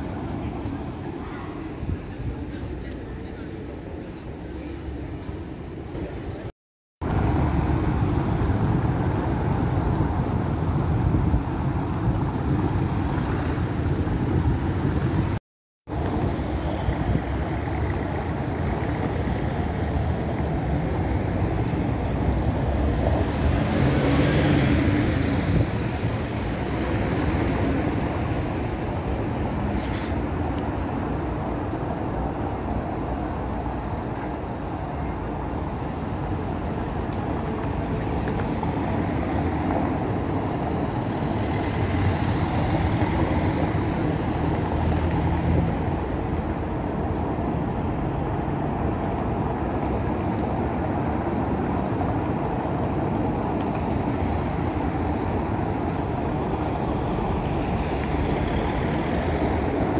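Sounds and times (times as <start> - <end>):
bus engines rumbling: 0.0 - 59.9.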